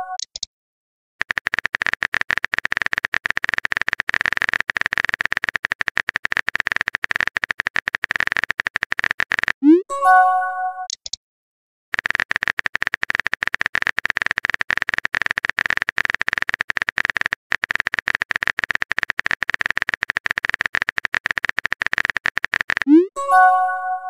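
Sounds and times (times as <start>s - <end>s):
phone keyboard typing clicks: 1.2s - 9.7s, 10.9s - 11.2s, 12.0s - 24.0s
message sent swoop and chime: 22.9s - 24.0s.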